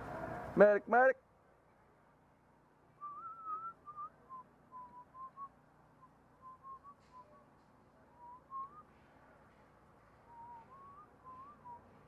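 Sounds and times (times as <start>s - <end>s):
person whistling a tune: 3.0s - 7.4s, 8.2s - 8.9s, 10.3s - 12.0s.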